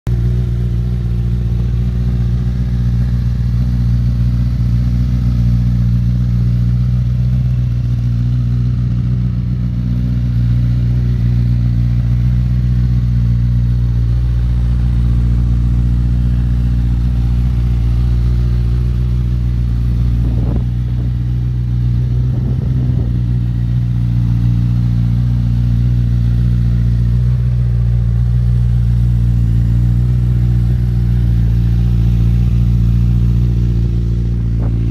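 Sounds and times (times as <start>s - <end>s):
motorcycle engine idling: 0.1s - 34.9s.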